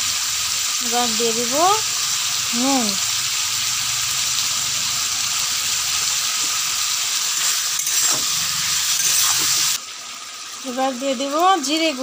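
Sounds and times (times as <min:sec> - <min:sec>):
vegetables sizzling in hot oil: 0:00.0 - 0:12.0
spatula scraping through vegetables: 0:07.2 - 0:09.8.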